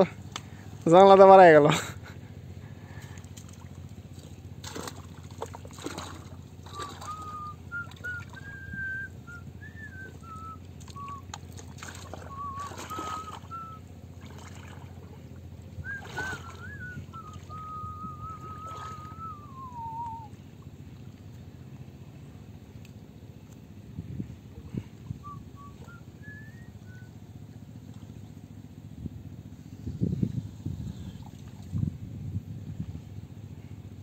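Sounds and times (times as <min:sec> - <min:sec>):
soft water splashes: 0:02.7 - 0:23.6, 0:26.8 - 0:28.8, 0:30.9 - 0:32.0
person whistling a tune: 0:06.7 - 0:11.3, 0:12.2 - 0:13.8, 0:15.8 - 0:20.3, 0:25.1 - 0:27.2.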